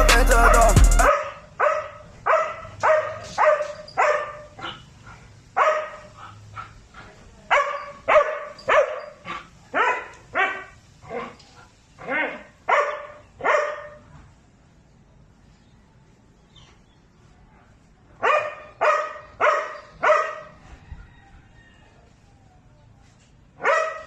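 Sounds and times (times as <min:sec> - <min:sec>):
dog barking: 0:01.0 - 0:04.9, 0:05.6 - 0:06.8, 0:07.5 - 0:11.4, 0:12.0 - 0:14.1, 0:18.2 - 0:20.6, 0:23.6 - 0:24.0.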